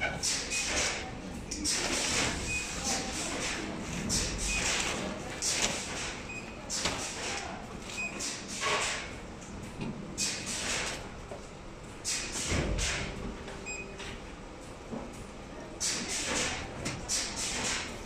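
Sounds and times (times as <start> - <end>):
low machine hum: 10.8 - 15.8.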